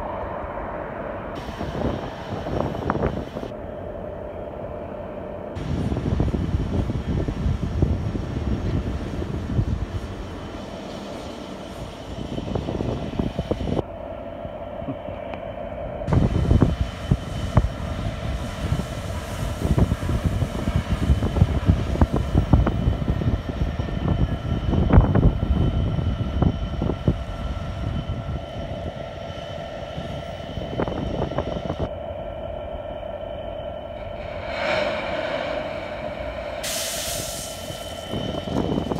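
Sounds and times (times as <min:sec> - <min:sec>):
diesel locomotive engine drone: 0:00.0 - 0:38.9
air hissing: 0:34.4 - 0:38.9.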